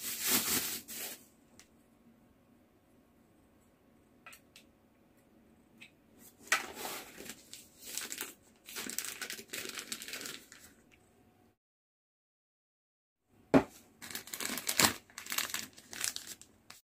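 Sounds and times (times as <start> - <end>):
plastic bags crinkling: 6.4 - 10.9, 14.0 - 16.8.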